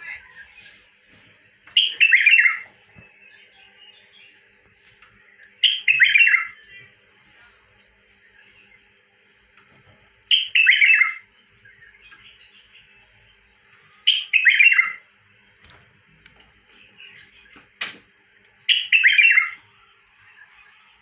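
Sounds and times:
bird singing short phrases: 5.2s - 7.4s, 10.3s - 15.1s, 18.6s - 21.0s.

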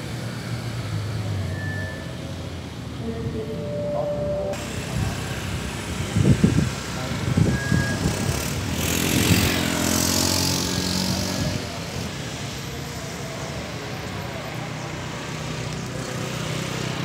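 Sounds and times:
street traffic: 0.0s - 17.0s
motorcycle passing: 3.0s - 12.2s.

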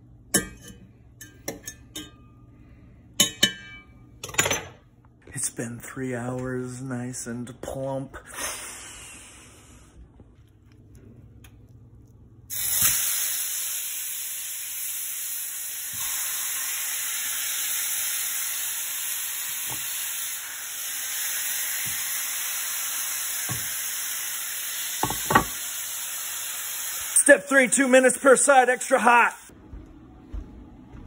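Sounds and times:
steak sizzling in a pan: 12.5s - 27.3s.

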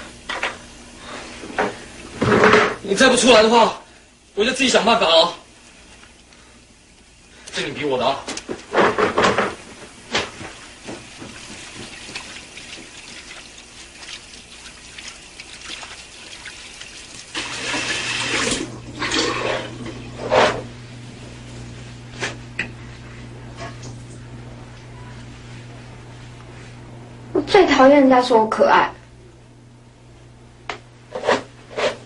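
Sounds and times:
low steady hum: 0.0s - 32.0s
water running and splashing: 8.6s - 19.8s.

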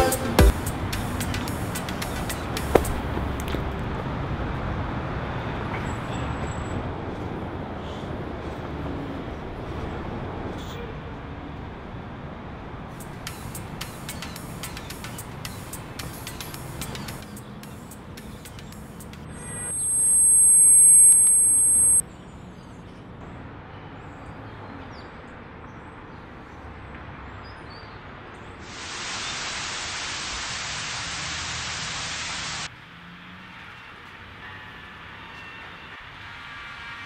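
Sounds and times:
loud high-pitched tone: 0.0s - 0.5s, 19.3s - 22.0s
city traffic hum: 0.0s - 37.0s
static hiss: 13.0s - 18.1s, 18.7s - 22.0s, 28.6s - 32.7s.

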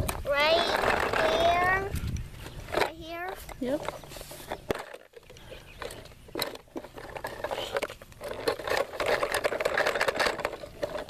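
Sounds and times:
toy motor buzzing: 0.3s - 2.0s.

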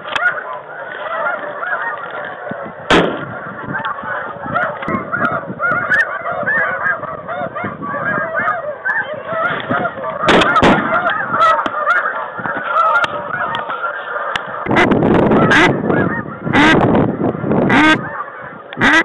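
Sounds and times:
geese honking: 0.0s - 19.0s
shotgun shots: 2.9s - 3.3s, 10.3s - 10.9s.

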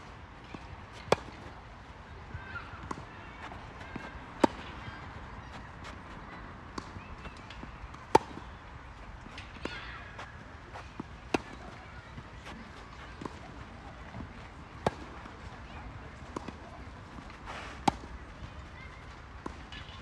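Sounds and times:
tennis ball bouncing: 0.5s - 1.5s, 2.8s - 4.9s, 6.7s - 8.5s, 9.3s - 11.8s, 12.4s - 15.4s, 16.2s - 18.1s.

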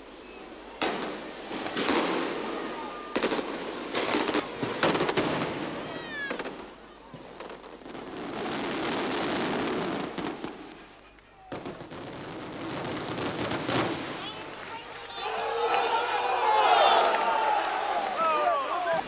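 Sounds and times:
crowd din: 13.1s - 19.0s.

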